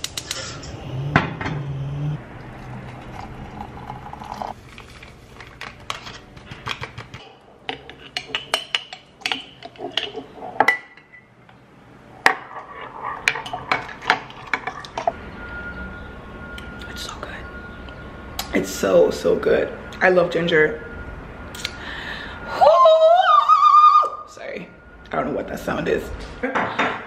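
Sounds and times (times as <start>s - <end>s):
spoon stirring in mug: 7.6s - 10.8s.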